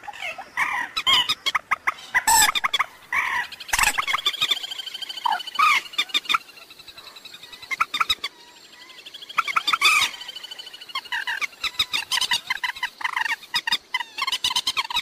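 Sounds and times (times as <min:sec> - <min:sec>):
moorhen calls: 0:00.1 - 0:15.0.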